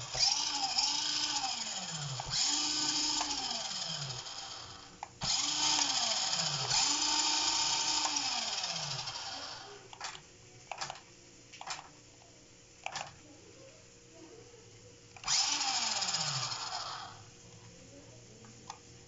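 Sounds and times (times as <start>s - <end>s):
toy car electric motor whining: 0.0s - 9.9s, 15.2s - 17.3s.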